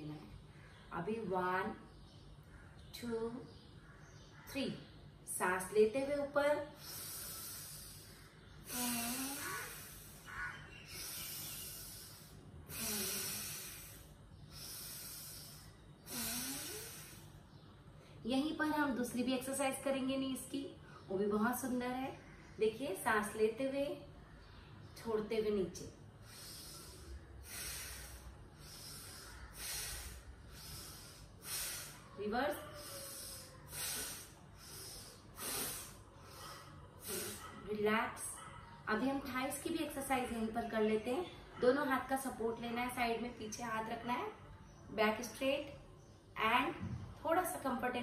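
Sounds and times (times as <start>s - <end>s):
woman breathing deeply: 6.7s - 18.2s, 26.1s - 37.6s.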